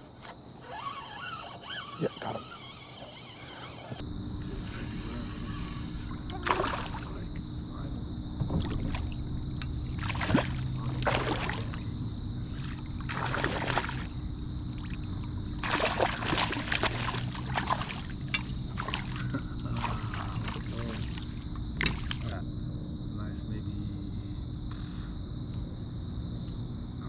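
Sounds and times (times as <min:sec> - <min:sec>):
steady low hum: 0:00.0 - 0:27.0
water splashing against kayak: 0:06.2 - 0:07.4, 0:08.4 - 0:11.9, 0:12.5 - 0:22.3.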